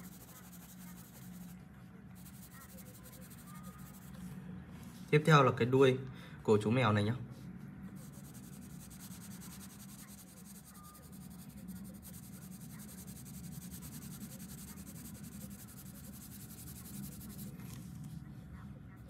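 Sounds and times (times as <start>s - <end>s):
pencil scratching on paper: 0.0s - 1.6s, 2.2s - 4.2s, 8.0s - 18.2s.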